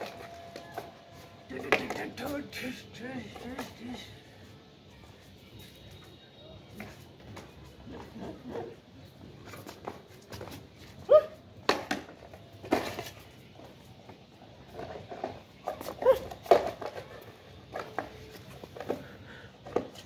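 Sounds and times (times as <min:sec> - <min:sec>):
dog barking and yelping: 0:11.1 - 0:11.4, 0:16.0 - 0:16.3.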